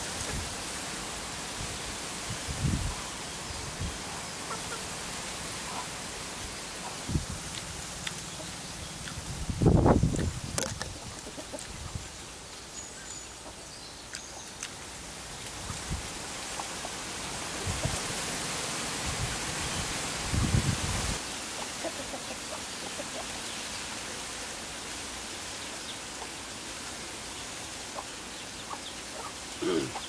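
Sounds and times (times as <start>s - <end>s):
steady hiss: 0.0s - 30.0s
wind rumbling on microphone: 1.6s - 4.0s, 7.0s - 7.9s, 8.8s - 12.1s, 15.5s - 16.2s, 17.6s - 18.2s, 19.0s - 21.2s.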